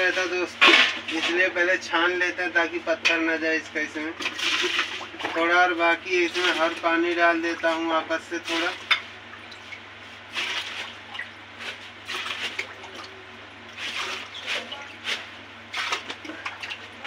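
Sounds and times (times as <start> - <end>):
ladle stirring water: 4.1 - 17.0
water splashes: 4.2 - 17.0
water trickling through strainer: 4.2 - 17.0.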